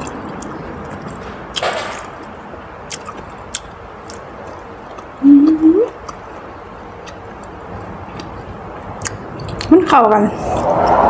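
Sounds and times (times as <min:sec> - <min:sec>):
wet squish of food: 0:00.0 - 0:09.8
soft chewing and mouth clicks: 0:00.0 - 0:11.0
person humming mmm: 0:05.2 - 0:06.0.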